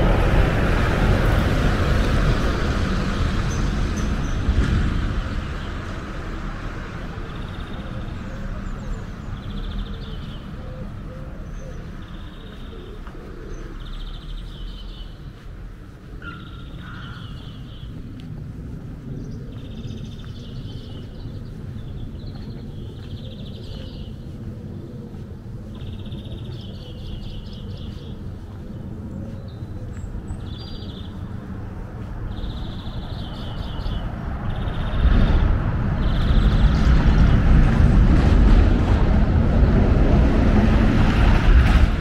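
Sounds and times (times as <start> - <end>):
loud low rumble: 0.0 - 10.5, 31.8 - 42.0
low outdoor rumble: 0.0 - 42.0
small birds chirping: 6.9 - 37.4.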